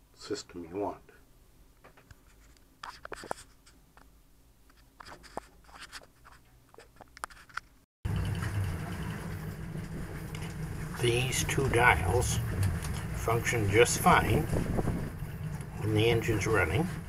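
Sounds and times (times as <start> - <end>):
handling scrapes and clicks: 2.0 - 4.1, 4.7 - 7.8
boat engine rumbling: 8.0 - 17.0.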